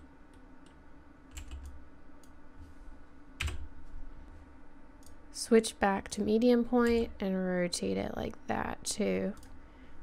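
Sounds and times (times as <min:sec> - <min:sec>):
faint steady hum: 0:00.0 - 0:10.0
computer keyboard and mouse clicks: 0:00.3 - 0:02.4.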